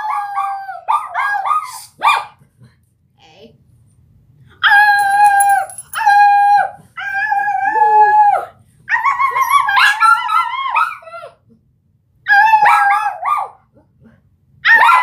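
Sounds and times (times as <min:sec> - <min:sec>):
small dog howling: 0:00.0 - 0:01.7, 0:12.3 - 0:13.6.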